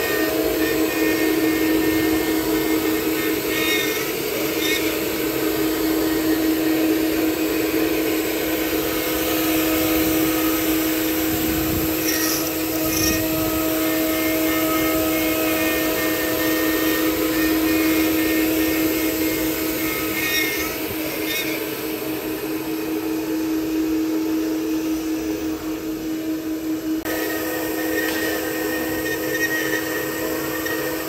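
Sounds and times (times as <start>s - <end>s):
router bit cutting wood: 0.0s - 31.0s
wood router spindle running: 0.0s - 31.0s.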